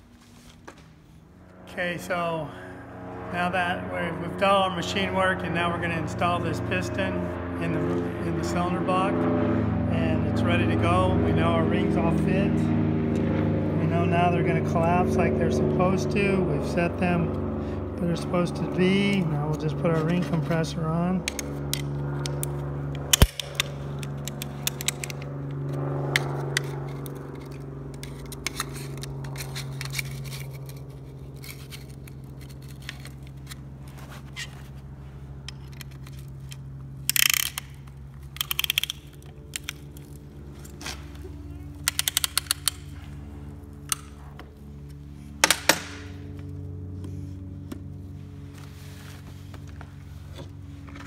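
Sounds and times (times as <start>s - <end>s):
steady low hum: 0.0s - 51.0s
ratchet clicking: 37.0s - 39.8s, 41.8s - 42.9s.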